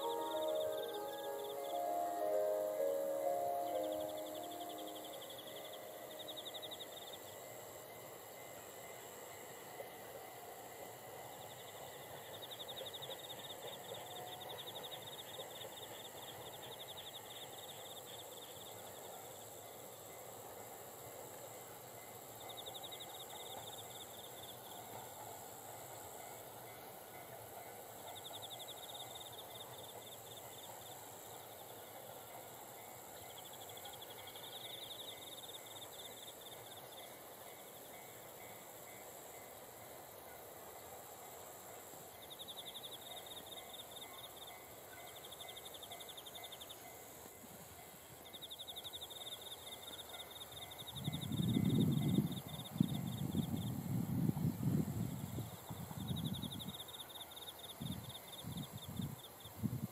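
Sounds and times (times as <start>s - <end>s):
distant electric train: 0.0s - 59.5s
crickets chirping: 0.0s - 59.9s
steady insect trill: 0.0s - 59.9s.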